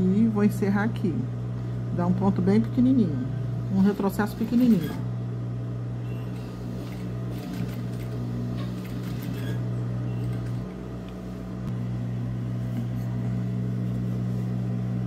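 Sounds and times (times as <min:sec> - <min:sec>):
sewing machine motor humming: 0:03.6 - 0:05.1, 0:06.0 - 0:11.1.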